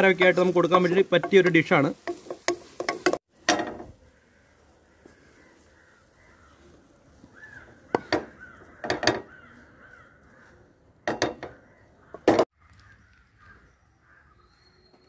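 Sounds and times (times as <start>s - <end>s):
crows cawing: 4.0s - 14.5s.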